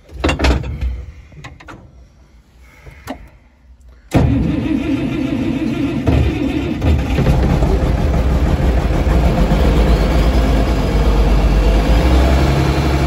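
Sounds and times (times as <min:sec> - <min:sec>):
tractor engine starting and running: 0:04.1 - 0:13.0.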